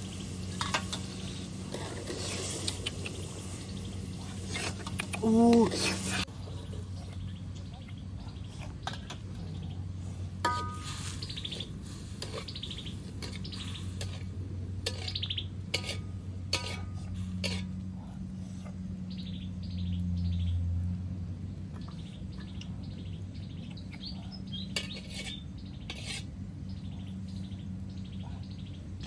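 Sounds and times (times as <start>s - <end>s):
birds chirping trills: 0.0s - 29.0s
steady low hum: 0.0s - 29.0s
metal ladle clinking in wok: 10.4s - 11.0s.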